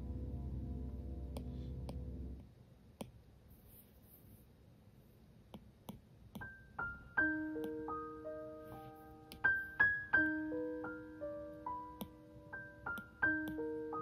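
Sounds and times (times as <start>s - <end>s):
piano music: 0.0s - 2.4s, 6.4s - 14.0s.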